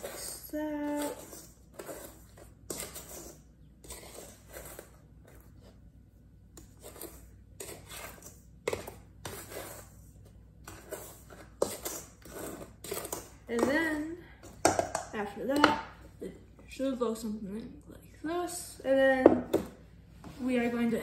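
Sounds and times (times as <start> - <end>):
spatula scraping a steel bowl: 0.0 - 5.8, 6.6 - 14.6.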